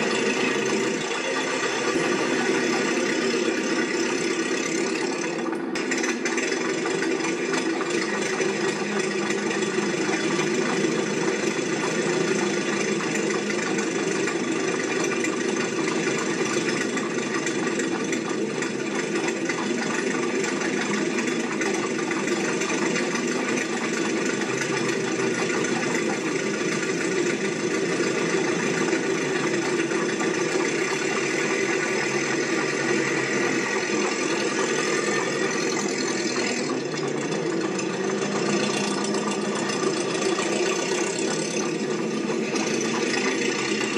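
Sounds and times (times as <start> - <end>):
machine running with hum: 0.0 - 43.9.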